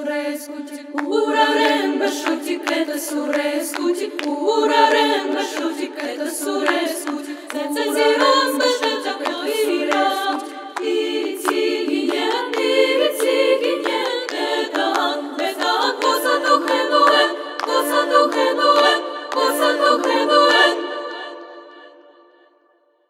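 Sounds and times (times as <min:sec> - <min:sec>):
women's choir singing: 0:00.0 - 0:22.6
rhythmic hand claps: 0:00.1 - 0:21.5.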